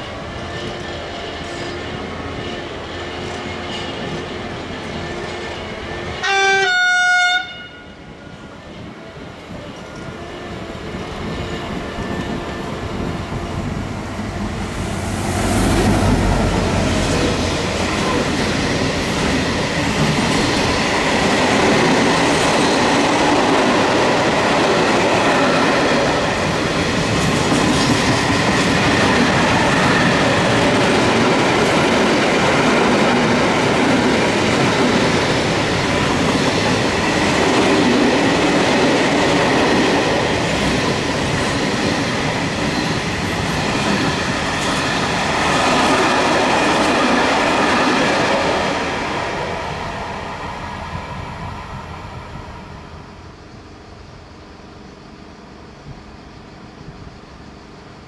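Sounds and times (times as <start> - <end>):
train passing: 0.0 - 58.0
two-note train horn: 6.2 - 8.0.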